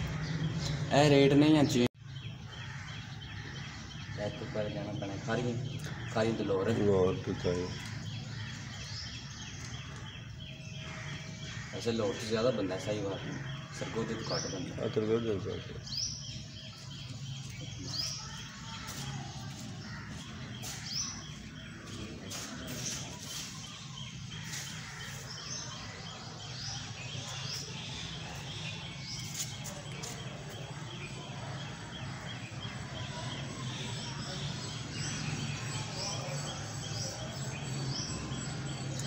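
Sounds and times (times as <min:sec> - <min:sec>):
birds chirping: 0:00.0 - 0:39.0.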